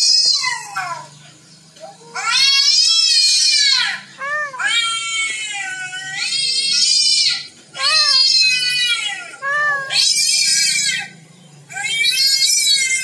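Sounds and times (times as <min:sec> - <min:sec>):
cat meowing from video: 0:02.2 - 0:11.1.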